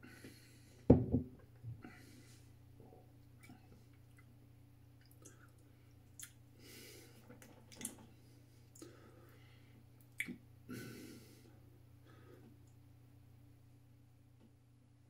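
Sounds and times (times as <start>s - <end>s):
low room hum: 0.0s - 15.0s
lip and tongue smacks: 5.0s - 6.4s, 10.0s - 10.4s.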